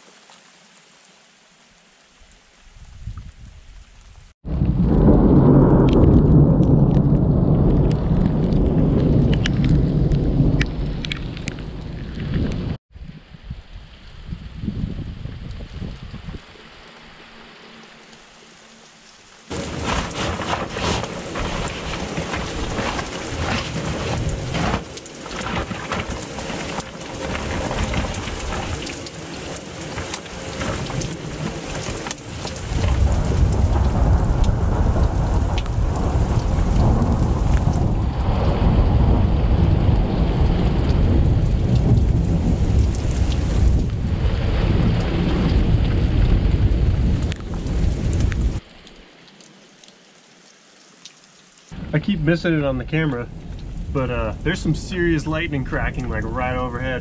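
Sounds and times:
heavy rain pouring: 0.0s - 12.8s, 13.7s - 57.0s
thunder rumbling: 4.4s - 12.8s, 19.5s - 48.6s, 51.8s - 57.0s.

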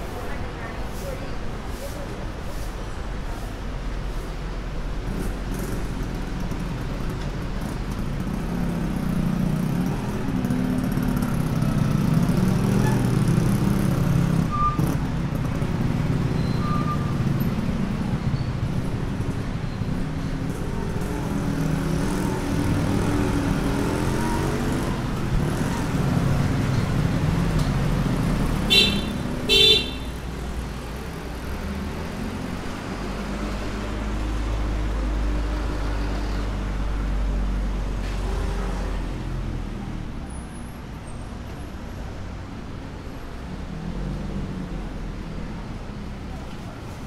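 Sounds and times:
street traffic: 0.0s - 47.0s
short horn beeps: 28.7s - 30.1s.

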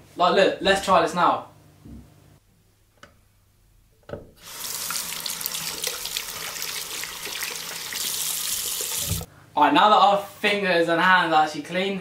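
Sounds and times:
water running into sink: 4.4s - 9.3s.

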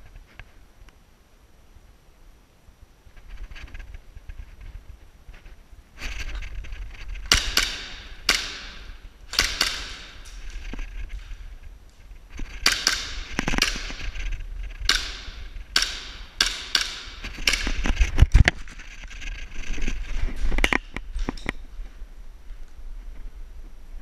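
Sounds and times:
airsoft gun shots: 7.3s - 10.5s, 12.6s - 14.2s, 14.8s - 18.0s.

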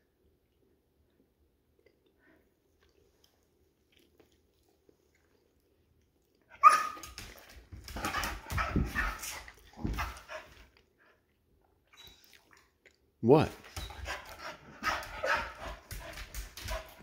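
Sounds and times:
dog barking: 6.6s - 7.0s.

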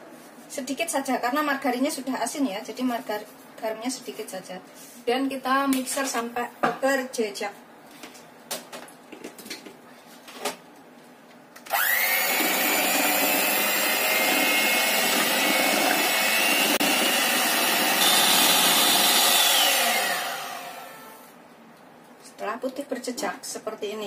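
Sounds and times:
electric hand mixer whining: 11.7s - 21.3s.

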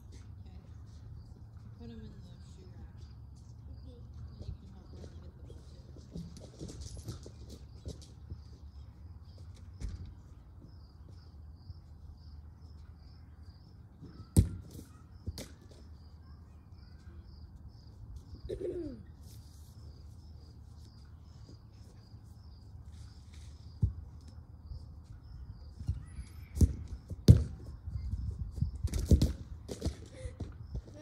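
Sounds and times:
ball kicked thud: 14.2s - 15.6s, 26.6s - 27.6s.

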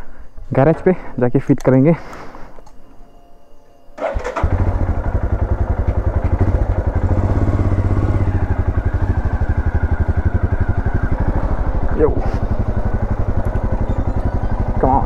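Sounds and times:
motorcycle engine running: 4.0s - 15.0s.

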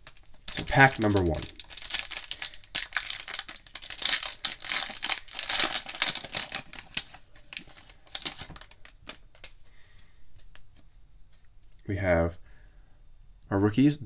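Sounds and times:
foil wrapper tearing and crinkling: 0.0s - 9.6s.

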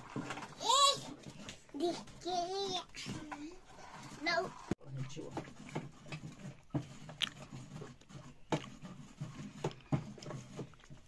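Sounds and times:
ladle scraping metal pot: 0.0s - 11.0s.

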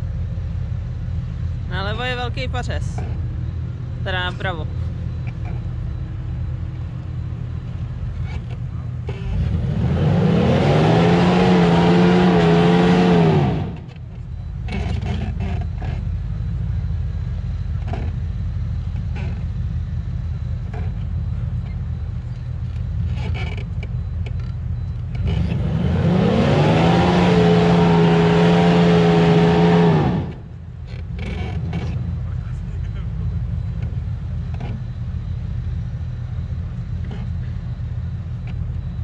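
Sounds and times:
engine revving hard: 9.3s - 13.9s, 25.2s - 30.5s.

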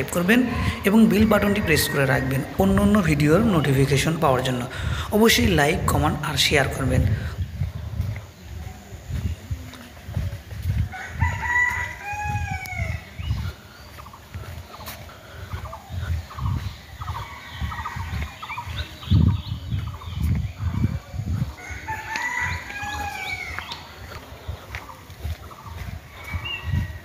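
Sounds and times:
hens clucking: 0.0s - 27.0s
rooster crowing: 0.6s - 2.7s, 10.9s - 13.1s, 21.6s - 23.8s.

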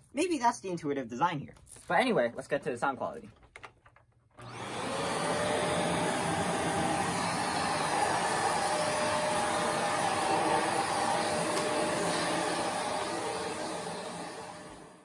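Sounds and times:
vacuum cleaner running: 4.4s - 15.0s.

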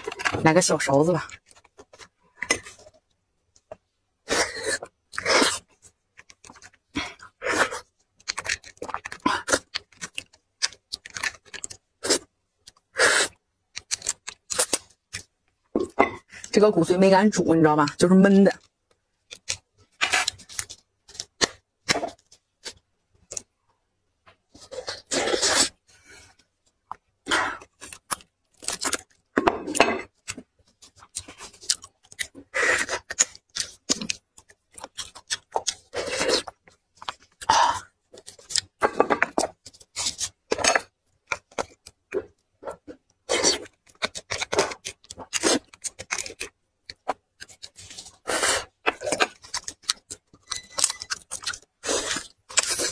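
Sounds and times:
wet chewing and smacking: 1.3s - 15.4s, 18.6s - 23.5s, 30.0s - 52.9s
meat tearing: 43.2s - 52.9s.

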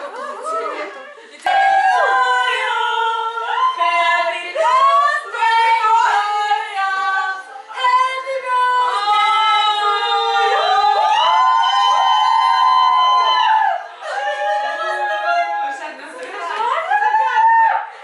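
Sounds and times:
women singing together: 0.0s - 18.0s.

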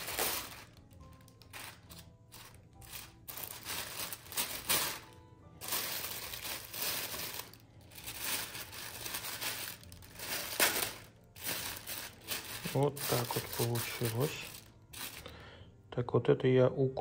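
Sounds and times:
plastic sleeve crinkling: 0.0s - 15.4s
background music: 0.0s - 17.0s.

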